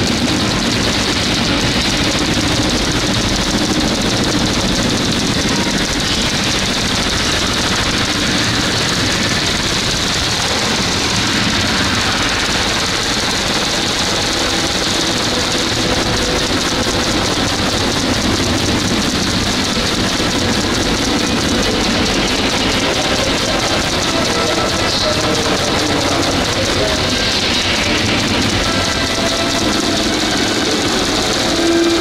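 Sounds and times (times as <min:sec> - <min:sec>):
rocket launch noise over loudspeakers: 0:00.0 - 0:32.0.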